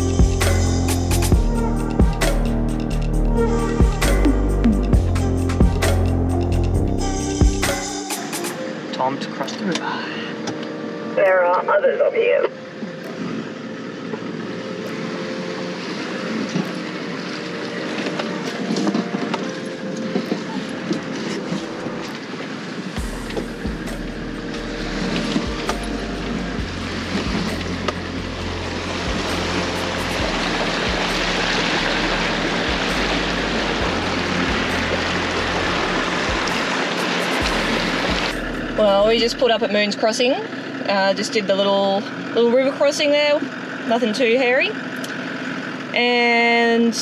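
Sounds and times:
vehicle engine running: 0:00.0 - 0:07.9, 0:22.8 - 0:47.0
low hum: 0:00.0 - 0:08.0, 0:12.5 - 0:46.0
water washing around vehicle: 0:00.0 - 0:08.4, 0:12.2 - 0:47.0.

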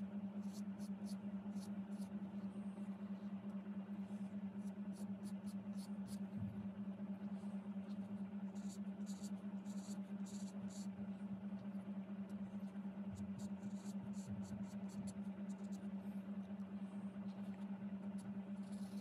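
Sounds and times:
steady low hum: 0:00.0 - 0:19.0
pen nib scratching on card: 0:00.4 - 0:02.5, 0:04.5 - 0:06.4, 0:07.8 - 0:11.0, 0:11.6 - 0:19.0.

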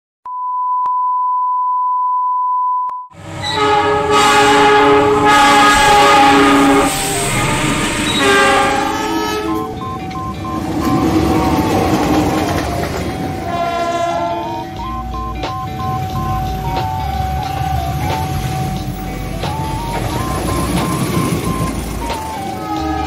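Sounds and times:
high test-tone beep: 0:00.3 - 0:03.1, 0:08.9 - 0:13.5, 0:14.4 - 0:22.8
diesel locomotive horn blowing: 0:03.2 - 0:12.2, 0:13.1 - 0:15.1, 0:20.2 - 0:23.0
passing train: 0:03.2 - 0:23.0.

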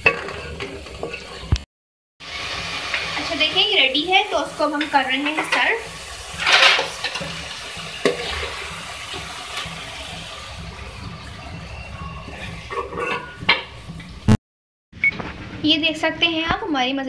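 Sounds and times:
stew sizzling and bubbling: 0:00.0 - 0:14.4
ladle scraping and splashing: 0:04.9 - 0:11.2, 0:12.2 - 0:14.0.

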